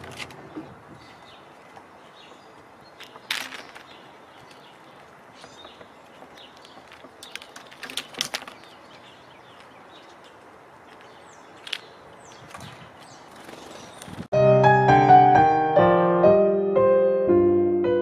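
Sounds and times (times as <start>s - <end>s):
outdoor background noise: 0.0s - 14.3s
squirrel tapping and scratching: 3.0s - 10.4s.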